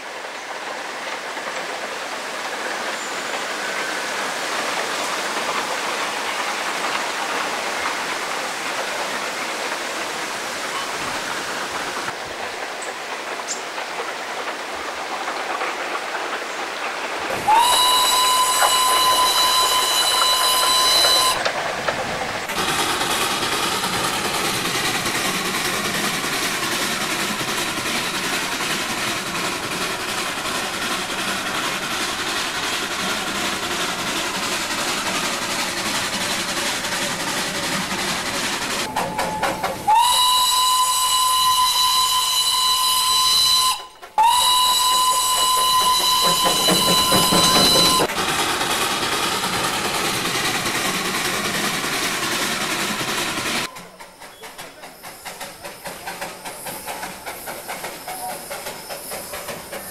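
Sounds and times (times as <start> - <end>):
train running on track: 0.0 - 59.9
steam locomotive whistle: 17.3 - 21.5, 38.8 - 48.1.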